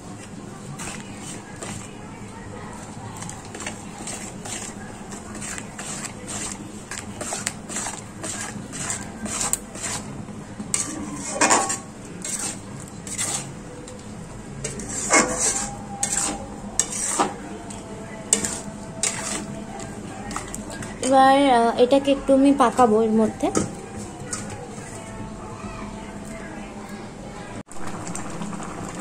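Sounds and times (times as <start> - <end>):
metal spatula scraping a wok: 3.2 - 13.7, 14.6 - 21.2.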